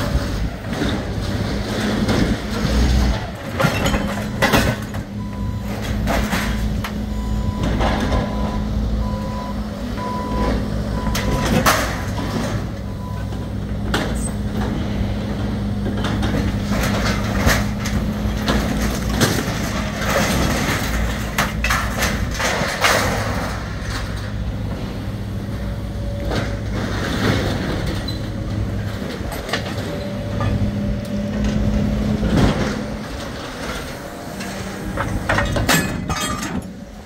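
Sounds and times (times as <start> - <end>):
excavator engine drone: 0.0 - 37.0
scrap metal clanking: 31.3 - 37.0.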